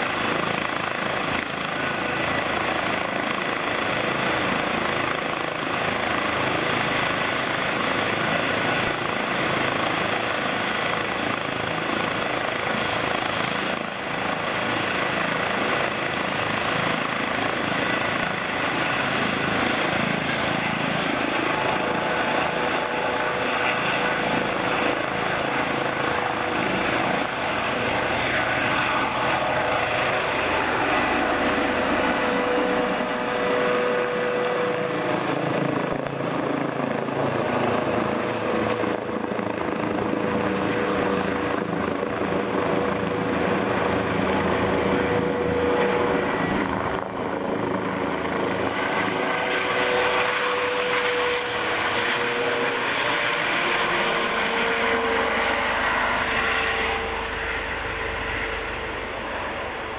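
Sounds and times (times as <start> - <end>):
helicopter turbine and rotor: 0.0 - 59.9.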